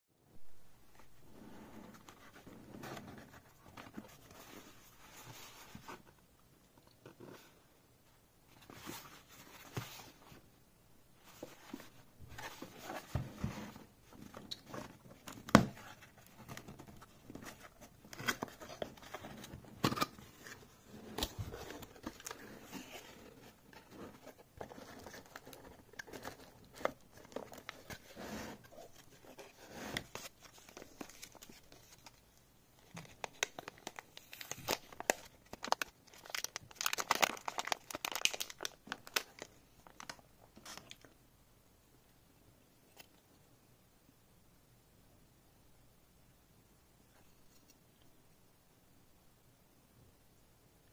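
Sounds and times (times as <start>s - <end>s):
anti-static bag crinkling: 30.2s - 41.1s.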